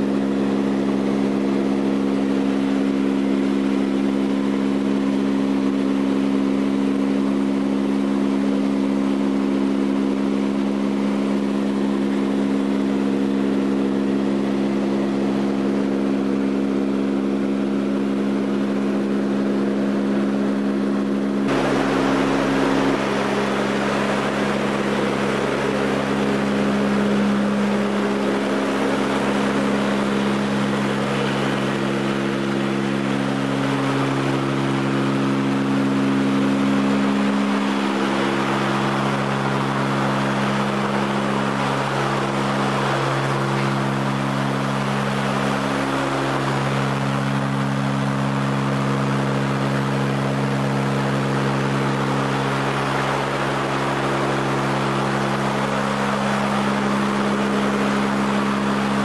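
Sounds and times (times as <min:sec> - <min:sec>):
propeller engines humming: 0:00.0 - 0:59.0
rush of air: 0:21.5 - 0:34.4.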